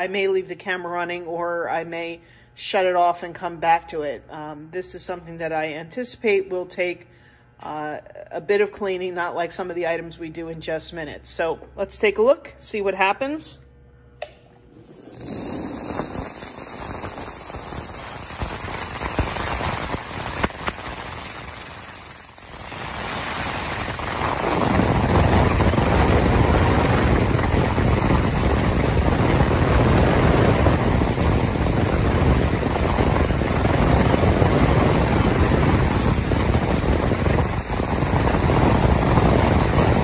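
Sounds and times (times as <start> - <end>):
ultrasonic cleaner hissing: 14.7 - 40.0.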